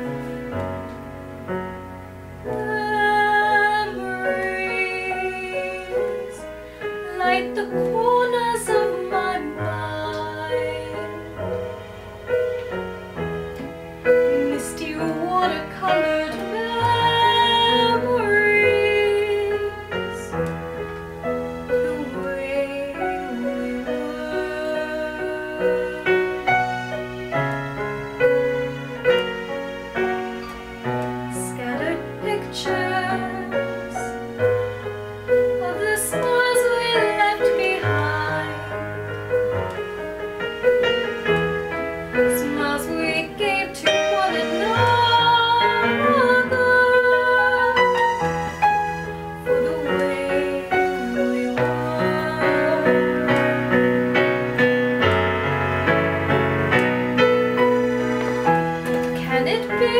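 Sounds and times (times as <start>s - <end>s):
electronic keyboard ballad: 0.0s - 59.9s
woman singing: 2.4s - 11.8s, 14.1s - 20.6s, 21.7s - 26.5s, 31.3s - 34.3s, 35.5s - 39.2s, 42.1s - 54.2s, 58.9s - 59.9s.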